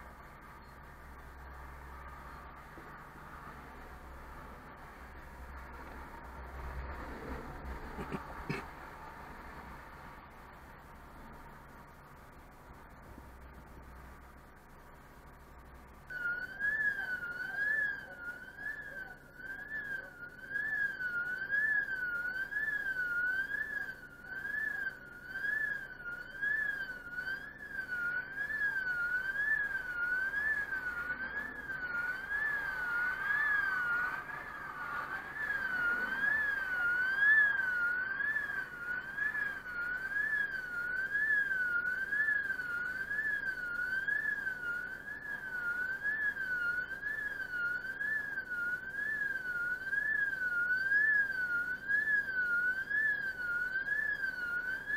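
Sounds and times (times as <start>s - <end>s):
warbling warning alarm: 0.0s - 54.9s
car passing: 3.3s - 11.5s.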